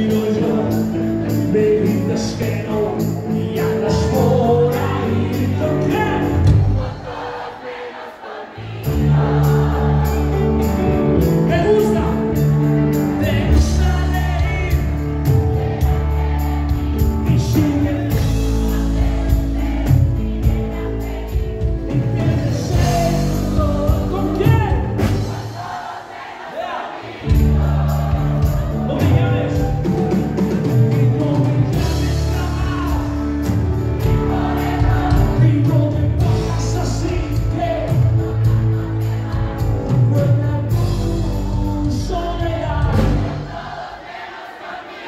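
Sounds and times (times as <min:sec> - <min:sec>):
person singing: 0:00.0 - 0:07.4, 0:16.9 - 0:25.1, 0:27.3 - 0:43.2
live band playing pop song: 0:00.0 - 0:07.6, 0:08.7 - 0:26.0, 0:27.1 - 0:44.2.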